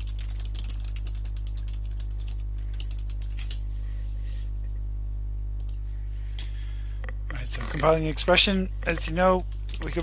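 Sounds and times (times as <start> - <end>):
typing on computer keyboard: 0.0 - 3.6, 8.9 - 10.0
low electrical hum: 0.0 - 10.0.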